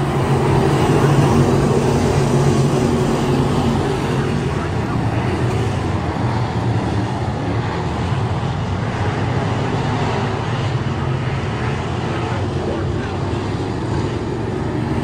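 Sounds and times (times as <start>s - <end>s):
race car engine running hard: 0.0s - 15.0s.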